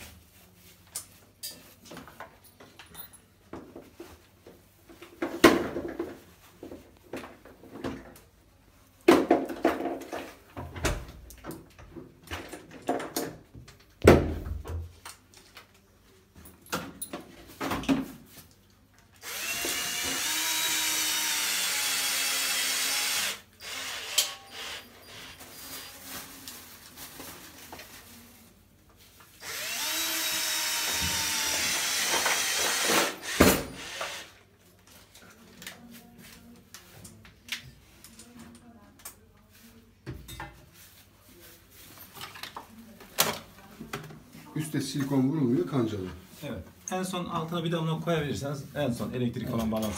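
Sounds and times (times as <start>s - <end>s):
knocks and clatter of handling: 9.0s - 15.7s
cordless drill driving screws: 19.2s - 25.3s, 29.4s - 34.4s.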